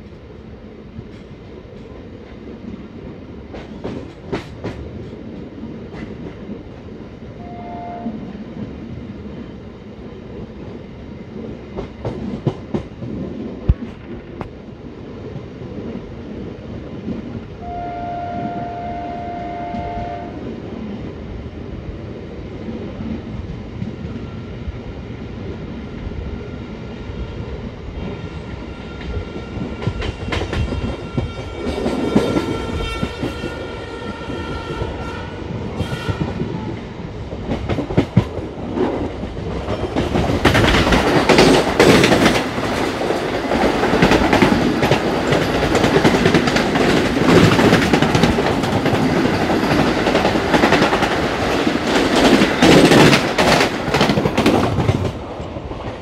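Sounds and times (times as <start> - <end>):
passing train rushing: 0.0 - 56.0
train wheels running on rails: 0.0 - 56.0
train horn: 7.4 - 8.4, 17.6 - 20.4, 30.3 - 36.8.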